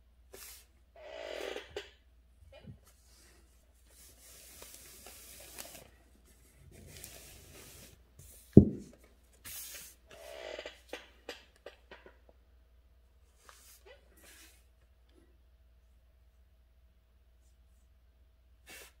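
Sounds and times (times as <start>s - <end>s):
paper rubbing on a table: 3.9s - 8.6s
dull thump: 8.6s - 9.0s.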